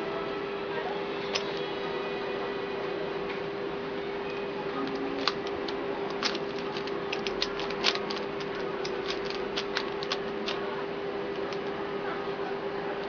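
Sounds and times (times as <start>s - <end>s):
plastic puzzle clicking: 4.8s - 10.6s.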